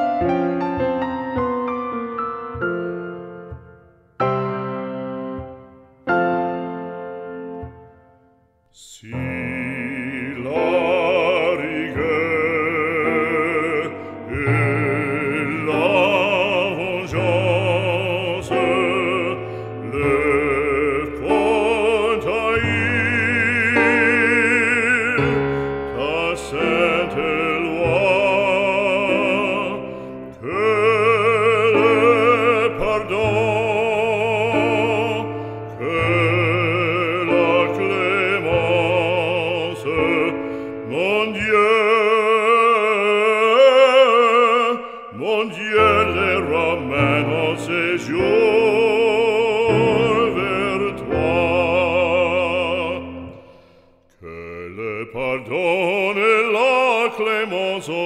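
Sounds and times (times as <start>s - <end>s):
instrumental accompaniment: 0.0s - 43.6s
operatic voice singing: 8.7s - 58.0s.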